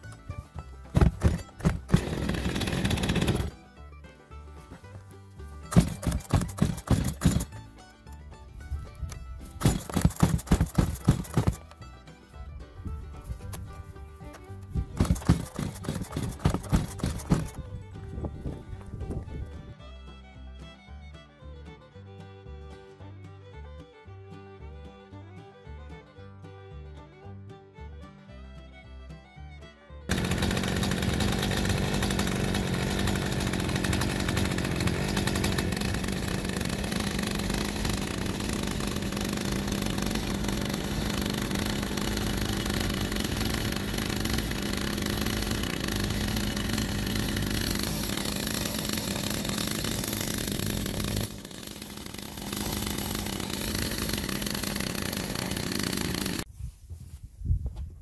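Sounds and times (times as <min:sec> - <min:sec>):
chainsaw engine idling: 0:00.1 - 0:03.7, 0:05.6 - 0:07.8, 0:09.4 - 0:11.8, 0:14.7 - 0:17.8, 0:30.1 - 0:56.5.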